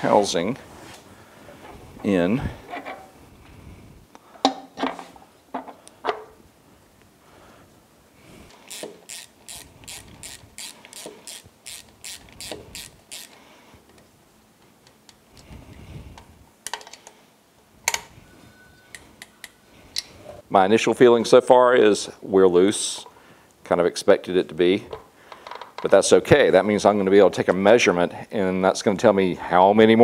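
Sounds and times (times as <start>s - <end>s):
ratchet wrench clicking: 8.5s - 13.4s.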